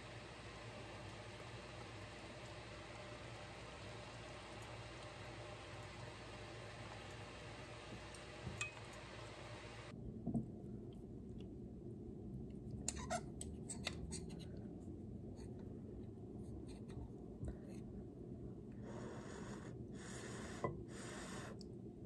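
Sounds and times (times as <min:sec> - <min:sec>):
soft breathy hisses: 0:18.8 - 0:21.7.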